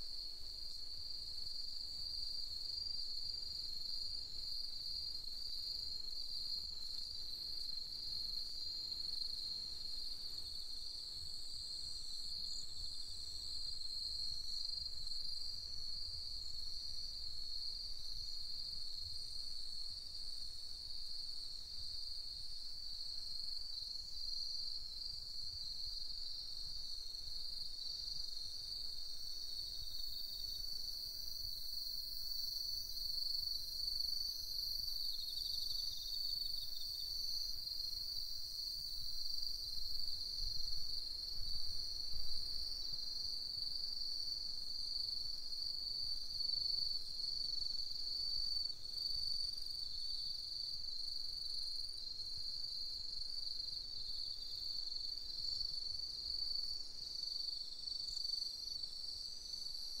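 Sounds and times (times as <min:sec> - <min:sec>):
insects trilling: 0:01.8 - 0:19.3.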